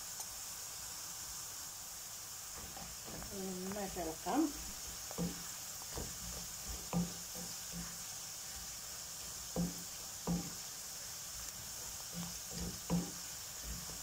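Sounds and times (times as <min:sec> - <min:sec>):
oil sizzling in a pan: 0:00.0 - 0:14.0
wooden spatula scraping pan: 0:02.6 - 0:08.0, 0:11.6 - 0:14.0.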